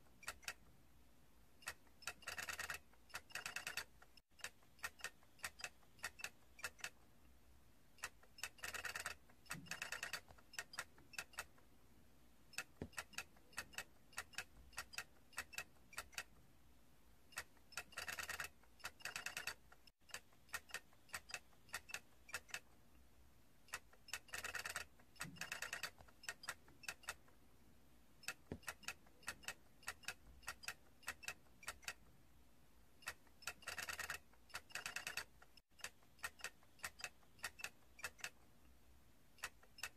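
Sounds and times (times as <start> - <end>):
plastic toy clicking: 0.2 - 0.6, 1.6 - 7.0, 8.0 - 11.6, 12.5 - 16.3, 17.3 - 22.7, 23.7 - 27.3, 28.2 - 32.0, 33.0 - 38.4, 39.4 - 39.9.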